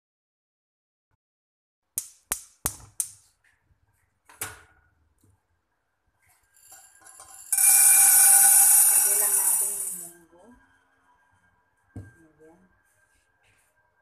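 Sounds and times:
dried beans rattling in metal pot: 6.6s - 10.1s.

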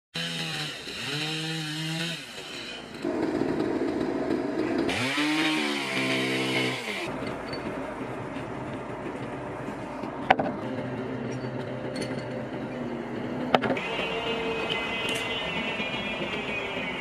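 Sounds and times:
chainsaw revving: 0.2s - 7.1s, 13.8s - 14.5s.

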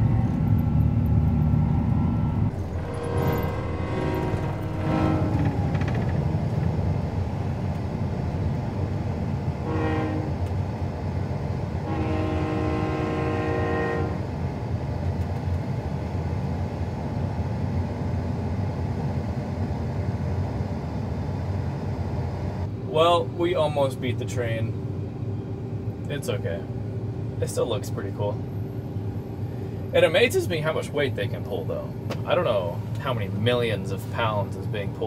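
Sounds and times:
low rumble in vehicle cab: 0.0s - 35.0s
locomotive horn blasts: 2.5s - 6.6s, 9.5s - 10.5s, 11.8s - 14.3s.

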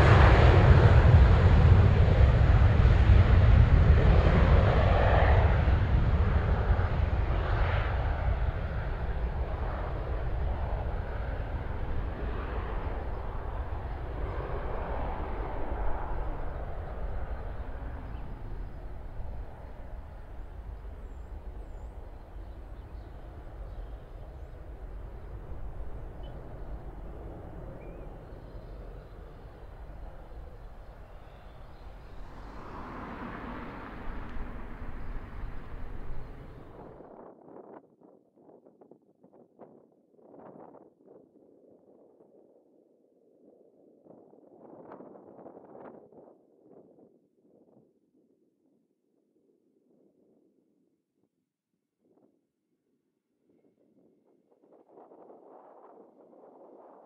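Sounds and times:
jet engines: 0.0s - 37.1s.

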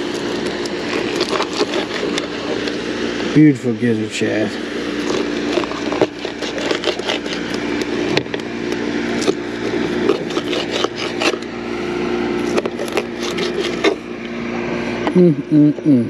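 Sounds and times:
knife sawing through fish: 0.0s - 2.9s, 4.8s - 8.1s, 9.1s - 11.5s, 12.4s - 14.1s
steady low hum: 0.0s - 16.0s.

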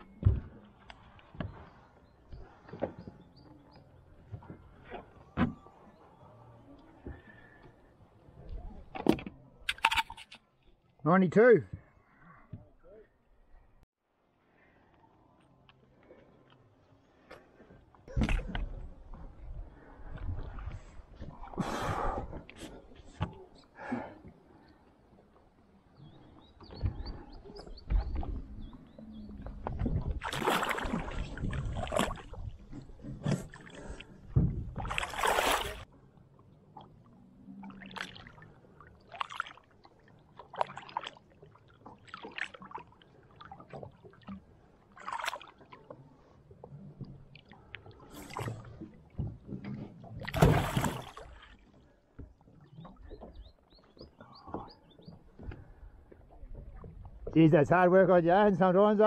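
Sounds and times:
knocks and thumps on a boat: 0.0s - 0.7s, 26.5s - 33.6s, 34.2s - 35.0s, 48.8s - 51.2s, 52.1s - 57.4s
water splashing beside a boat: 14.6s - 57.6s.

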